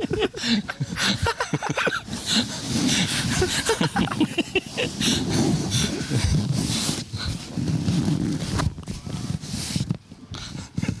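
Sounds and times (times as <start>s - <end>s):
people laughing: 0.0s - 6.3s.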